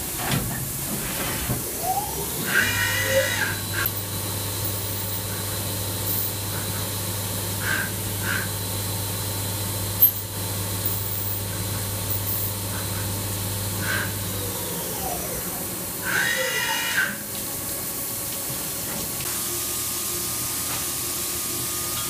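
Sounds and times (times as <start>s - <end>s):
milling spindle humming: 1.6s - 17.2s.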